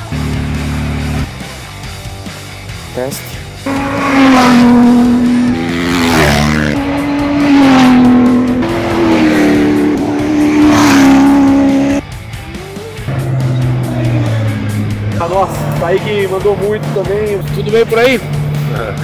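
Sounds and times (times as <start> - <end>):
rally cars racing past: 3.6 - 12.0, 13.0 - 19.0
low hum: 12.8 - 18.7.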